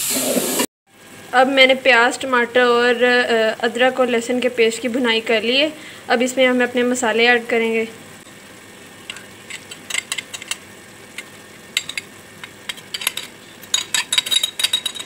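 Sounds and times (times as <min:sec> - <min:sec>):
oil sizzling in a pot: 0:00.0 - 0:01.3
knife scraping glass bowl: 0:12.9 - 0:15.0.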